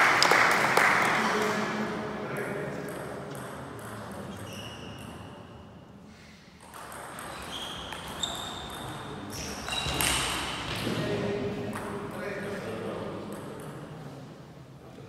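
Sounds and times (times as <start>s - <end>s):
short high squeaks: 4.3s - 5.3s, 7.2s - 10.3s.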